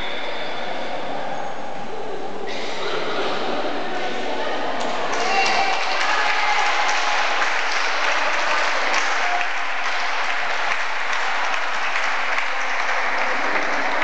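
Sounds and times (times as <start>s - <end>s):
crowd clapping: 5.1s - 14.0s.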